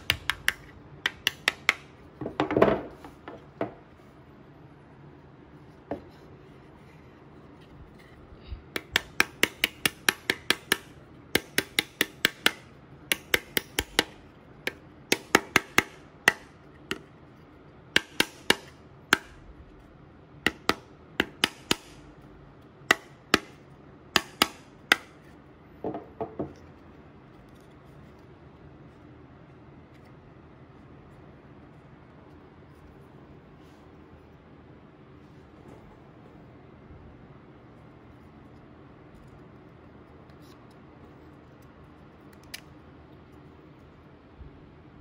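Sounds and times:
mallet tapping wooden panels: 0.0 - 3.8, 8.7 - 14.2, 15.1 - 17.0, 18.0 - 19.3, 20.5 - 22.0, 22.9 - 25.2.

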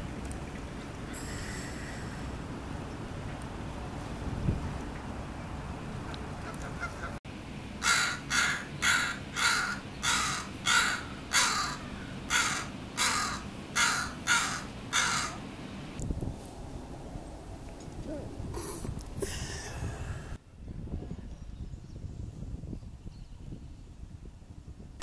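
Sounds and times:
crow cawing: 7.8 - 15.4.

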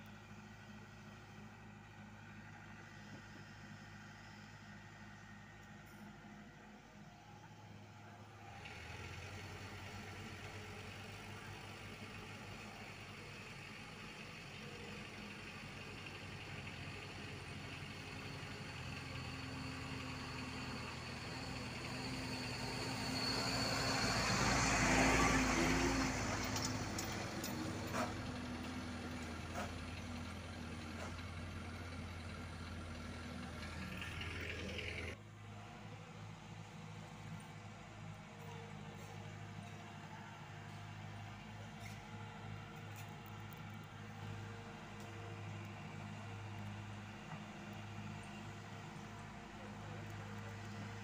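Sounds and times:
diesel truck engine passing: 14.6 - 51.0.

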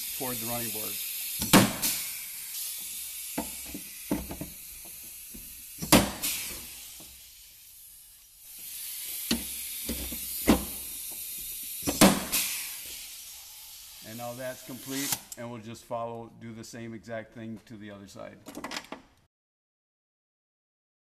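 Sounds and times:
rivet gun air hiss: 0.0 - 15.4.

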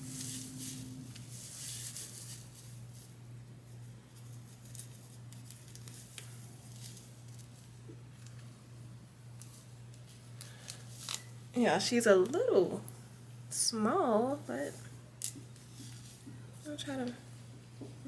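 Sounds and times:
hair rustling: 0.0 - 8.6, 14.4 - 17.4
steady low hum: 0.0 - 18.0.

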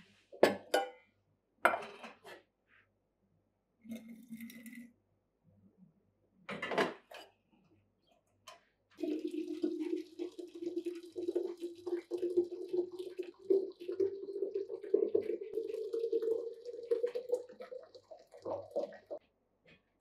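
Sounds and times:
tea pouring into glass carafe: 3.9 - 4.9, 9.0 - 19.2
water pouring from kettle: 3.9 - 4.9, 9.0 - 19.2.

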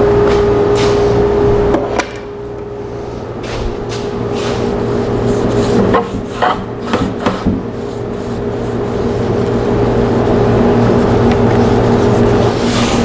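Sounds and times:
steady low hum: 0.0 - 13.0
paint brush scratching on wood: 3.5 - 7.0, 7.7 - 9.6, 10.8 - 13.0.

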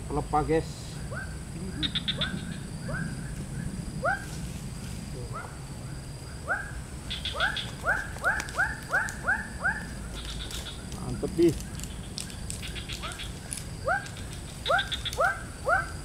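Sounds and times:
rapid high-pitched ticks: 10.1 - 15.4.

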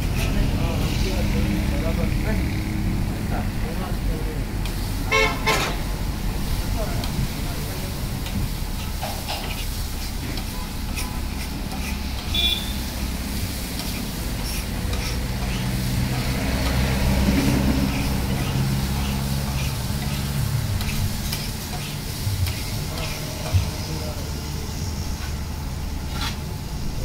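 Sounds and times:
vehicle engine rumbling: 0.0 - 27.0
food frying in oil: 3.9 - 27.0
metal spatula scraping on iron griddle: 8.8 - 24.0, 26.1 - 26.5.

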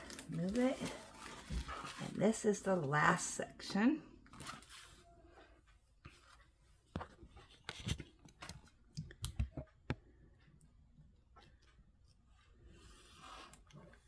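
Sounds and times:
canvas and plastic film handling: 0.0 - 2.8.

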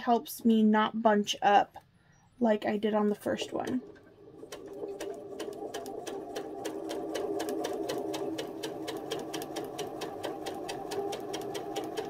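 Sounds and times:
sewing machine stitching: 3.2 - 12.0.

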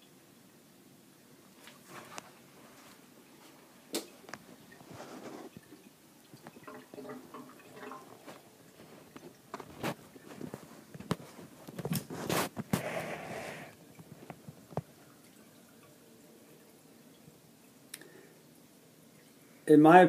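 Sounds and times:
water pouring into a pipe: 4.5 - 11.2.

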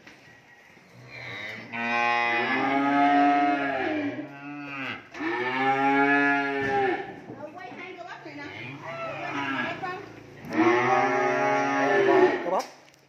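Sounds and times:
cattle mooing: 0.9 - 7.2, 8.4 - 12.5.

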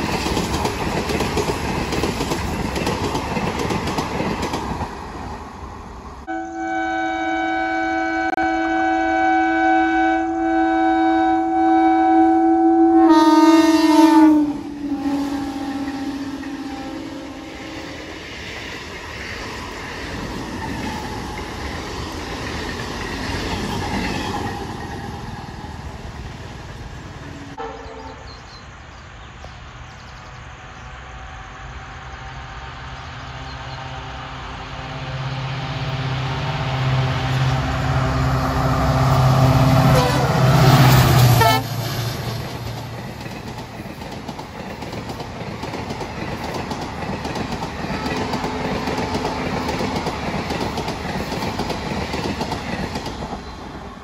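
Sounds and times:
train wheels clattering over rails: 0.0 - 5.3, 18.1 - 25.7, 40.8 - 54.0
train horn blast: 6.3 - 18.1, 27.5 - 28.4, 33.9 - 42.0, 47.8 - 50.0.

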